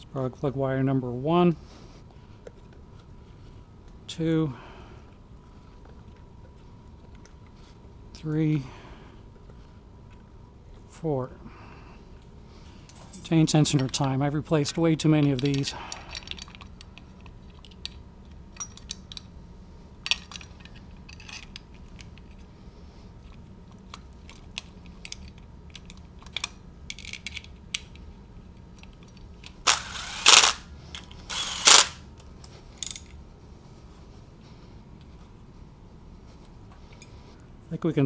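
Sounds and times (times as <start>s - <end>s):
tools and metal parts clinking: 12.9s - 14.3s, 14.9s - 19.3s, 20.0s - 22.4s, 23.7s - 28.0s, 28.7s - 33.2s.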